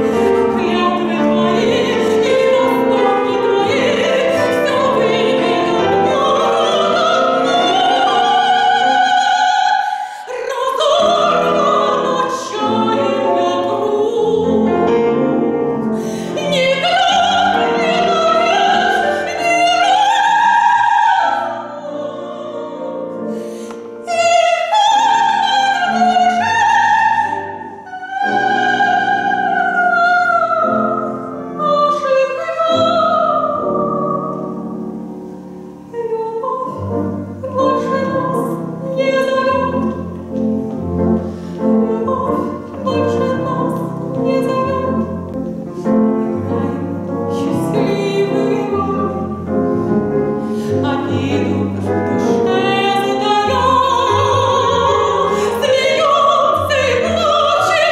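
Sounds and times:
piano: 0.0 - 57.9
soprano singing: 0.0 - 57.9
double bass: 36.8 - 57.9.

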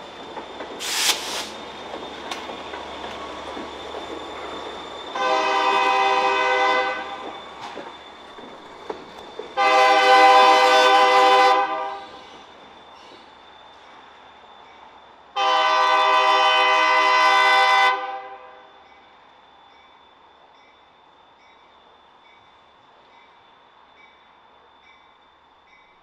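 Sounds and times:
locomotive rumbling on track: 0.0 - 18.4
diesel locomotive horn blasts: 5.1 - 7.2, 9.6 - 12.2, 15.4 - 18.7.

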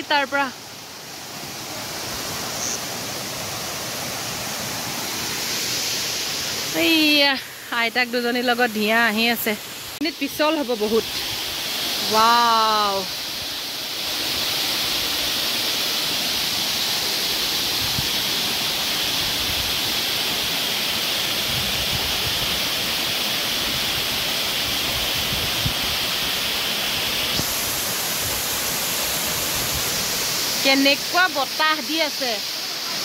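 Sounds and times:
waterfall rushing: 0.0 - 33.0.

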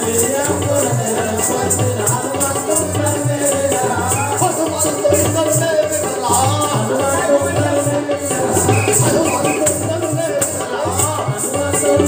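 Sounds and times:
jingling percussion: 0.0 - 12.0
wavering melody: 8.4 - 10.2
low beat: 8.4 - 10.4.

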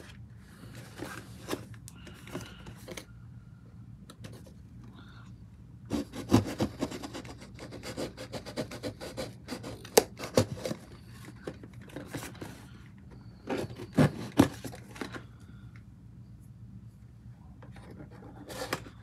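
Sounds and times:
scissors cutting cardboard: 5.9 - 10.9, 13.4 - 14.8.

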